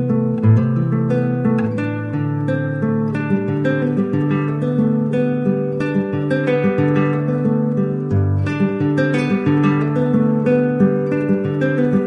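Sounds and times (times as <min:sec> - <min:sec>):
acoustic guitar chords: 0:00.0 - 0:12.0.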